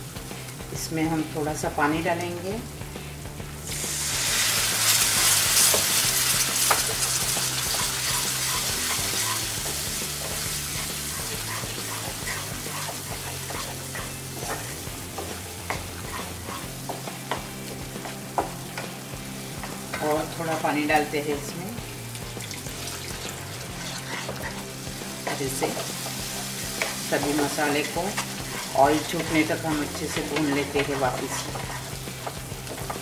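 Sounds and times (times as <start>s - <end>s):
hissing sizzle in frying pan: 0.0s - 33.0s
spatula scraping pan: 4.6s - 17.4s, 22.9s - 33.0s.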